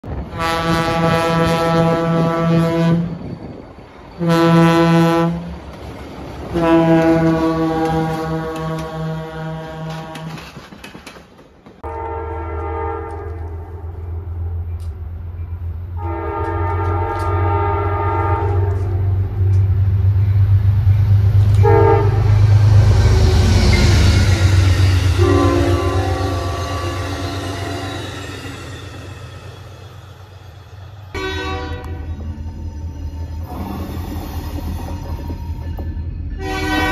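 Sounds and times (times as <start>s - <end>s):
rush of train wheels: 0.0s - 12.2s, 18.4s - 32.3s, 33.3s - 36.9s
locomotive engine rumbling: 0.0s - 36.9s
locomotive air horn blasts: 0.2s - 3.2s, 4.2s - 5.6s, 6.5s - 10.4s, 11.8s - 13.9s, 16.0s - 19.1s, 21.6s - 22.4s, 25.0s - 28.1s, 31.1s - 32.2s, 36.4s - 36.9s.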